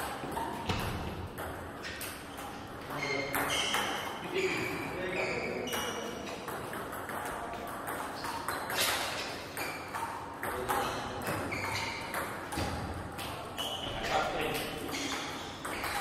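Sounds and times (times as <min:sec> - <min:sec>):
table tennis ball pinging: 0:00.0 - 0:16.0.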